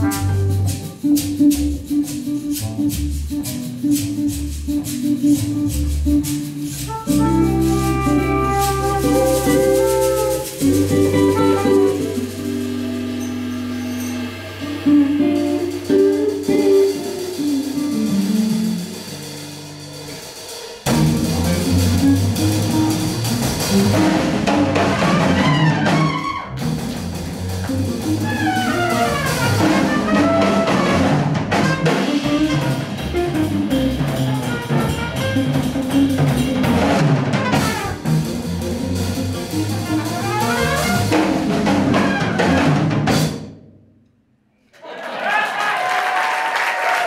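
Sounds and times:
brass horn: 0:00.0 - 0:01.0, 0:06.8 - 0:12.9, 0:23.8 - 0:26.6, 0:28.1 - 0:43.0
electric guitar: 0:00.0 - 0:19.8, 0:20.9 - 0:42.9
drum kit with cymbals: 0:00.0 - 0:43.7.

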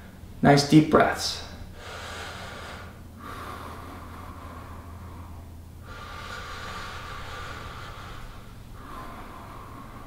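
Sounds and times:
low steady hum: 0:00.0 - 0:10.0
man breathing deeply: 0:01.7 - 0:10.0.

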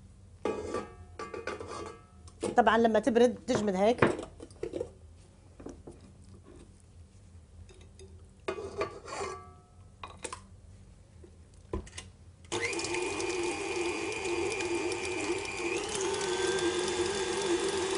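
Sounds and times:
stand mixer motor whining: 0:12.5 - 0:17.9.

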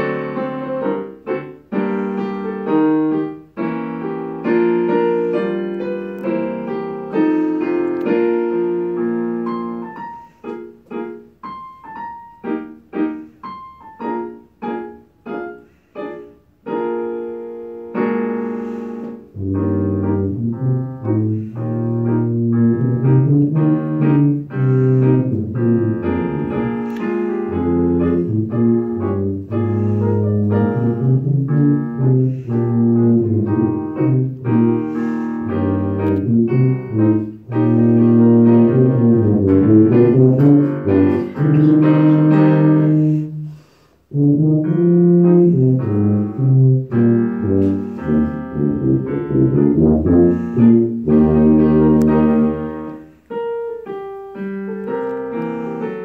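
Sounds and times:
digital piano: 0:00.0 - 0:56.0
tuba: 0:16.8 - 0:53.5.

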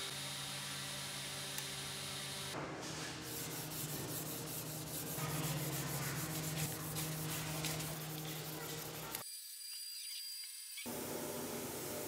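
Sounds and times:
pad rubbing wood: 0:03.3 - 0:09.2.

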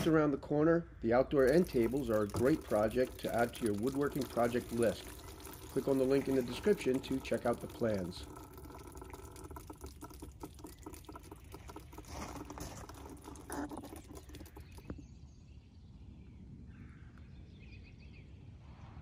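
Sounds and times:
outdoor background: 0:00.0 - 0:19.0
water dripping patter: 0:01.3 - 0:15.0.

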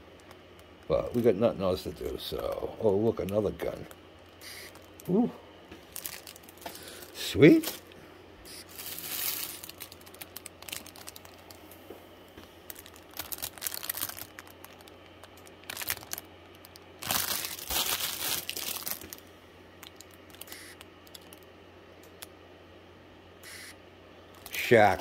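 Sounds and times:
plastic bags crinkling: 0:05.8 - 0:11.6, 0:12.6 - 0:21.4.

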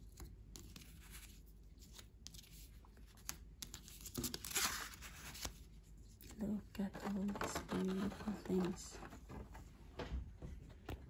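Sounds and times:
paper and packaging rustling: 0:03.8 - 0:09.7.

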